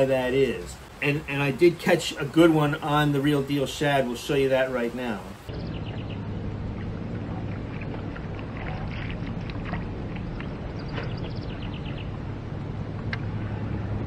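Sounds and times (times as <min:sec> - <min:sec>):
low hum and rumble outdoors: 0:00.0 - 0:14.0
birds chirping: 0:04.2 - 0:13.9.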